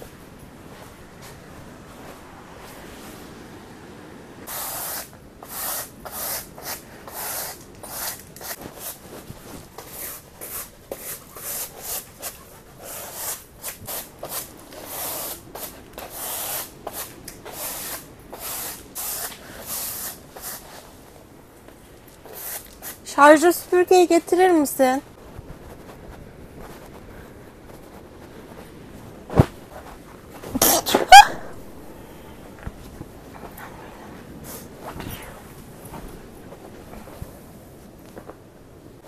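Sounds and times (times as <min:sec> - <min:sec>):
brush sweeping canvas: 0:04.5 - 0:21.1, 0:22.2 - 0:23.0, 0:24.5 - 0:30.8.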